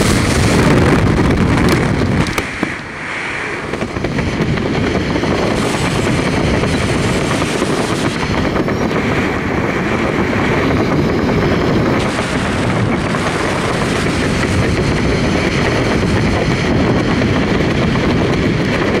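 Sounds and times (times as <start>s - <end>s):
wind rushing over microphone: 0.0s - 19.0s.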